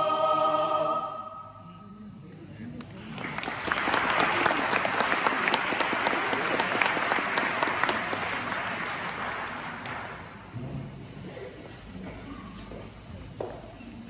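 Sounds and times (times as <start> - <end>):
audience clapping: 2.8 - 10.5.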